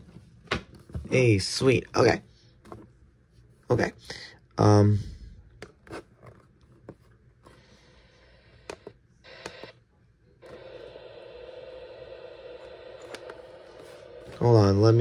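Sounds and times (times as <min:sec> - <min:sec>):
radio static hiss: 0:10.4 - 0:15.0.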